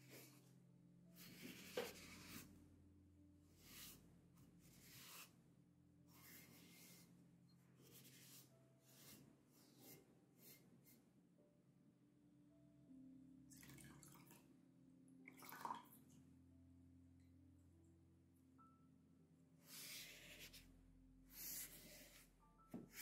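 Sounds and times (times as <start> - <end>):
sponge rubbing strokes: 3.6 - 4.0, 4.6 - 5.4, 6.1 - 7.1.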